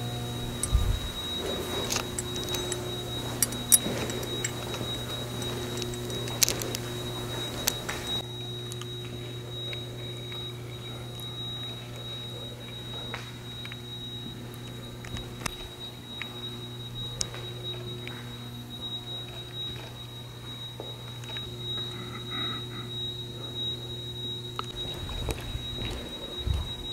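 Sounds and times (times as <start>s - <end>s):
high-pitched electronic alarm tone: 0.0s - 26.9s
low electrical hum: 0.0s - 26.9s.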